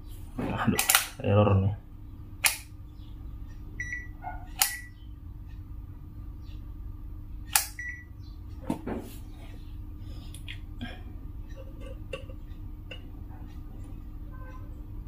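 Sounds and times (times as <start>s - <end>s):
multimeter switch clicks: 2.4s - 2.8s, 4.5s - 4.9s, 7.5s - 8.0s.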